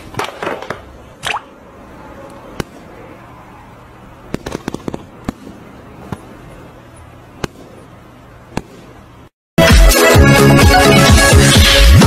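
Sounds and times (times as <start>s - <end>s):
low steady hum: 0.8s - 9.3s
sharp pops: 7.4s - 7.9s, 8.5s - 9.0s.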